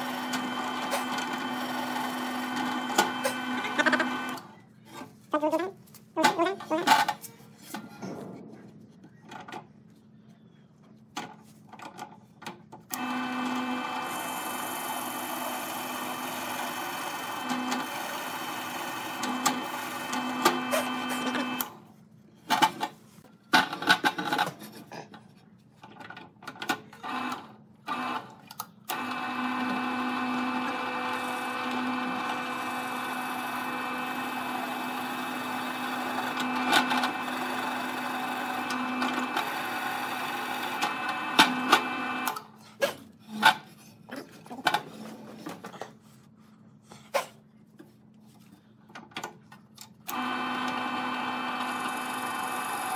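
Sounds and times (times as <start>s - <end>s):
drill bit cutting wood: 0.0s - 4.4s, 28.9s - 42.3s, 50.1s - 52.9s
drill press motor hum: 0.0s - 4.5s, 12.9s - 21.8s, 26.9s - 42.6s, 49.9s - 52.9s.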